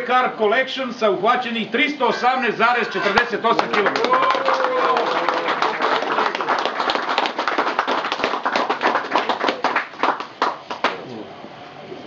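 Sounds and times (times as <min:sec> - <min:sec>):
people applauding: 0:03.0 - 0:11.1.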